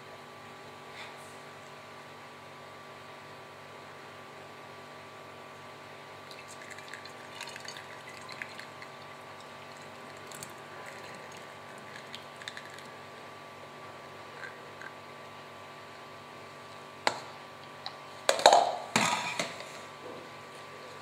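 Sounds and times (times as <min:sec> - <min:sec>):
steady background hum: 0:00.0 - 0:21.0
liquid pouring into a glass bottle: 0:06.3 - 0:13.2.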